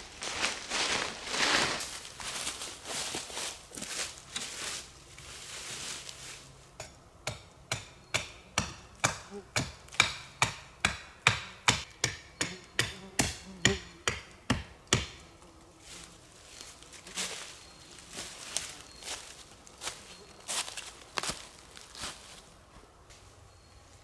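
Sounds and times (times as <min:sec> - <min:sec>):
footsteps in dry leaves: 0:00.0 - 0:06.6, 0:15.7 - 0:22.6
hatchet chopping wood: 0:06.8 - 0:15.2.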